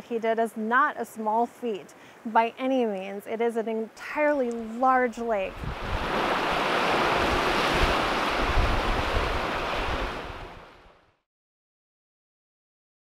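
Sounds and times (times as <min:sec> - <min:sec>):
wind rumbling on microphone: 0:04.9 - 0:11.2
waves washing on rocky shore: 0:05.2 - 0:10.9.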